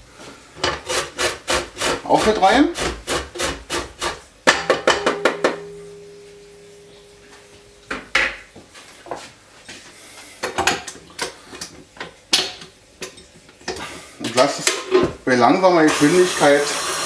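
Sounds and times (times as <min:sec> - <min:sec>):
metal bowl ringing: 0:04.6 - 0:07.9.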